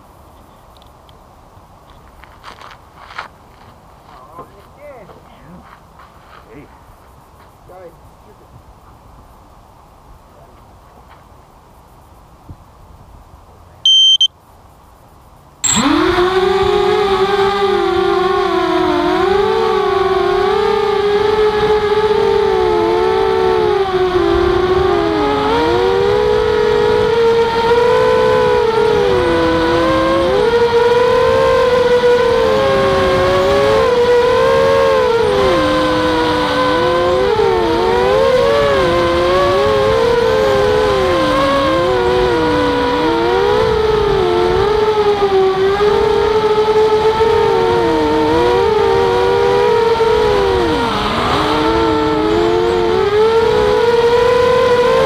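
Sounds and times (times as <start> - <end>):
quadcopter motors whining: 13.8 - 14.3, 15.6 - 55.0.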